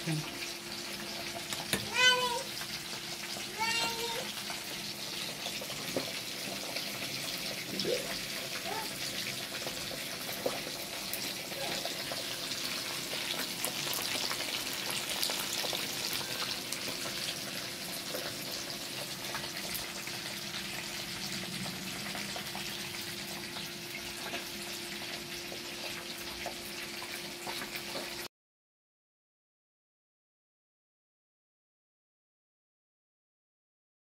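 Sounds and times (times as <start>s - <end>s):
fish deep-frying in oil: 0.0s - 28.3s.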